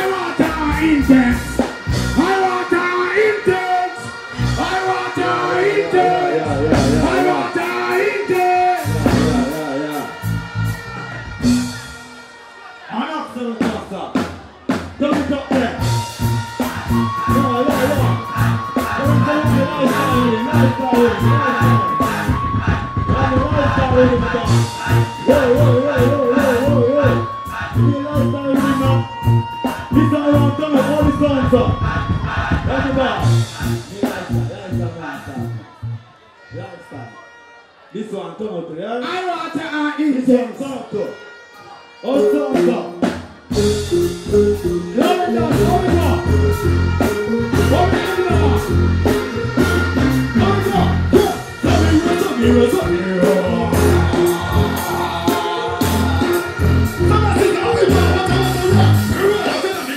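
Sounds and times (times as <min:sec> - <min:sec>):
bass and drum beat: 0:00.0 - 0:02.5, 0:06.5 - 0:07.4, 0:08.8 - 0:12.0, 0:13.6 - 0:35.6, 0:43.0 - 0:59.6
live dancehall band music: 0:00.0 - 0:59.9
person singing long notes: 0:43.6 - 0:59.8.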